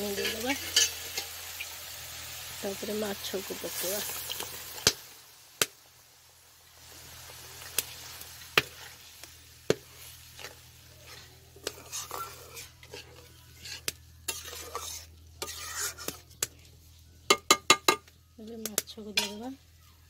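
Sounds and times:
ladle scraping a pan: 0.0 - 1.4, 9.7 - 17.5, 19.2 - 19.5
curry sizzling: 0.0 - 20.0.

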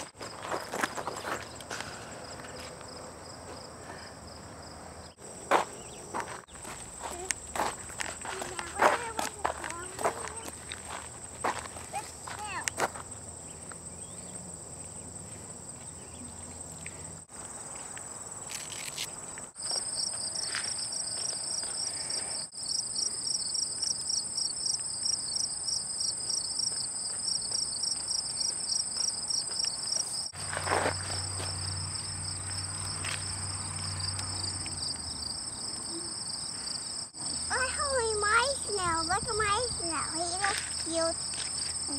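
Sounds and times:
insect pulsing chirp: 15.8 - 38.1
insect high trill: 18.1 - 38.1.

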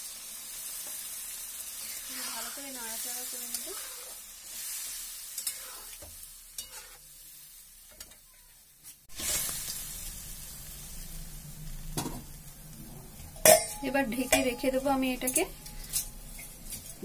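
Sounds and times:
hissing sizzle: 0.0 - 17.0
metal spatula scraping a pan: 1.8 - 10.1, 12.0 - 17.0.

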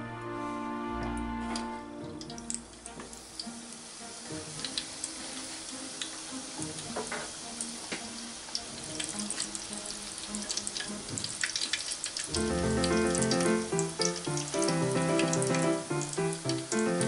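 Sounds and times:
background music: 0.0 - 17.0
hot oil bubbling and popping: 2.0 - 17.0.

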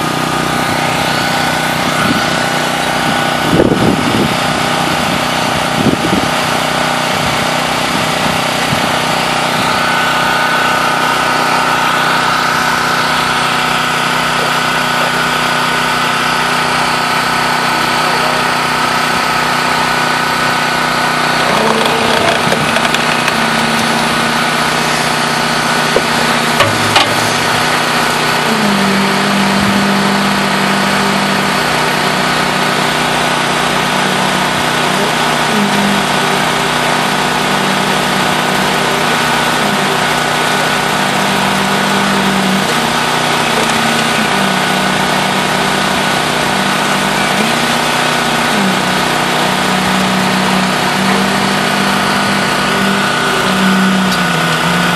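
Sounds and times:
construction machinery drone: 0.0 - 54.9
sharp knocks: 26.0 - 27.4.

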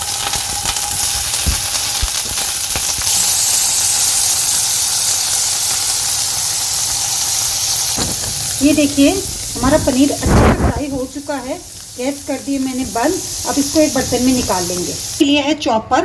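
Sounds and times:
cheese sizzling in oil: 0.0 - 15.2.

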